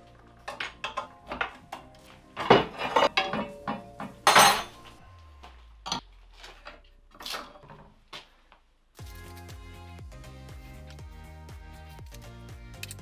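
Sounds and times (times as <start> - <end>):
metal parts clattering on workbench: 0.4 - 4.9.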